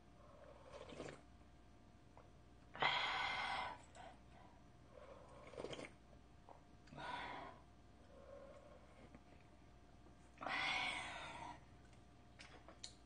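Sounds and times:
person slurping from bowl: 0:00.7 - 0:01.2, 0:05.4 - 0:06.0.

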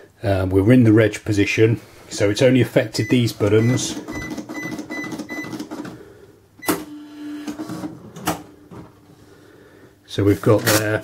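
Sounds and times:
cash register key beeps: 0:03.0 - 0:05.9, 0:06.6 - 0:07.8
receipt printer running: 0:03.1 - 0:06.0, 0:06.7 - 0:08.8.

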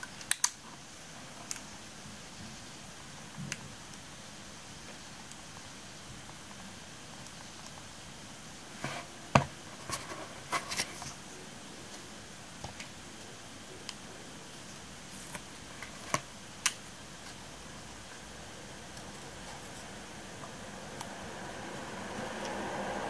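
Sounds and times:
pen set down on notebook: 0:08.8 - 0:10.1.

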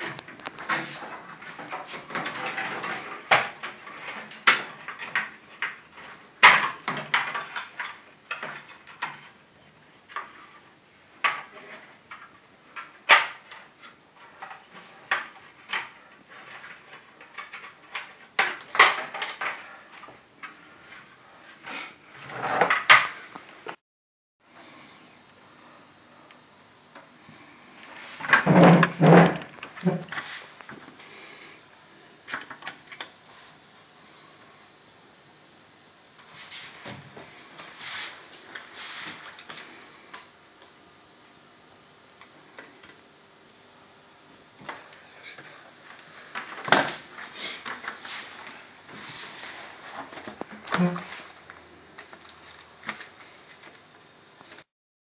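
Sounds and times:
rustling and scraping of test leads: 0:00.0 - 0:06.3, 0:27.3 - 0:31.6, 0:36.2 - 0:40.1, 0:44.7 - 0:54.7.

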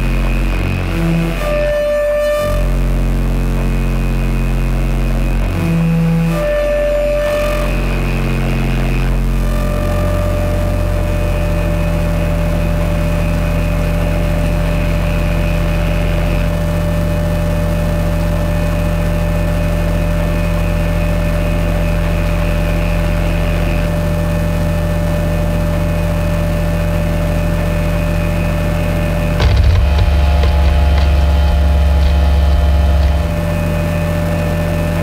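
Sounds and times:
low bass drone: 0:00.0 - 0:35.0
steady held tone: 0:27.6 - 0:35.0.

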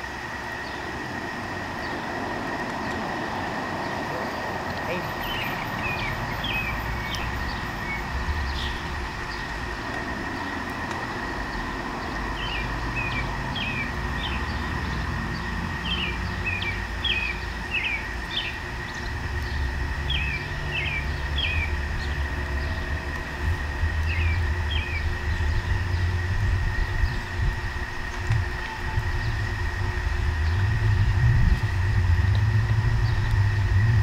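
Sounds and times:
steady low rumble: 0:00.0 - 0:34.0
bird chirping: 0:03.8 - 0:09.6, 0:11.4 - 0:26.2.

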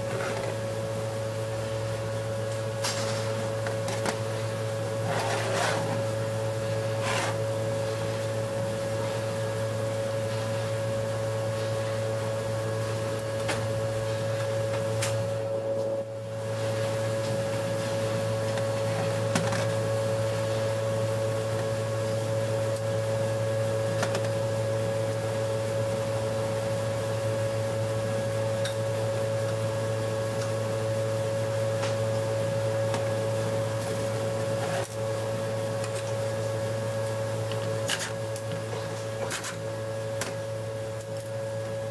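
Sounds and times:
machine hum: 0:00.0 - 0:41.9.

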